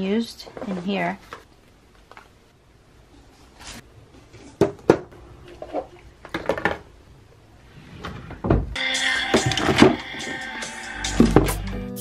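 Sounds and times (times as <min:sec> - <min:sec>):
boxes and bottles clattering: 0:04.3 - 0:06.9, 0:09.4 - 0:10.3.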